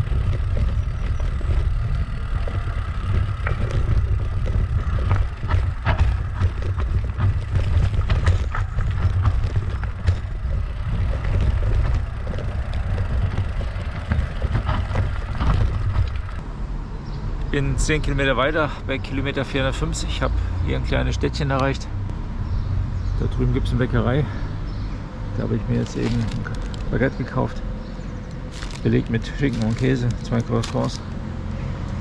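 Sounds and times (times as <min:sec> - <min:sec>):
bike rattling clicks: 0:00.0 - 0:16.4, 0:25.8 - 0:27.1, 0:28.2 - 0:31.2
bicycle riding rumble: 0:00.0 - 0:32.0.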